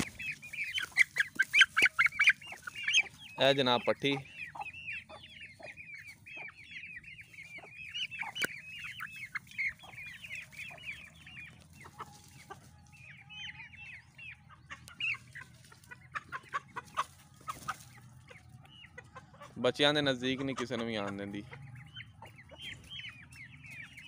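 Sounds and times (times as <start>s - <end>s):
chicks peeping: 0.0s - 24.0s.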